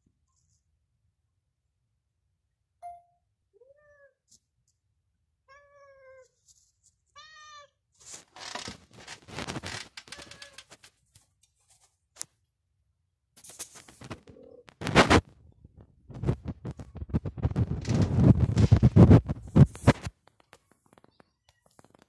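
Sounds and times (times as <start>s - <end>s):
cat meowing: 3.6s - 4.2s, 5.5s - 6.4s, 7.1s - 7.8s, 10.1s - 10.7s
rustling and clicking: 8.0s - 12.4s, 13.4s - 22.0s.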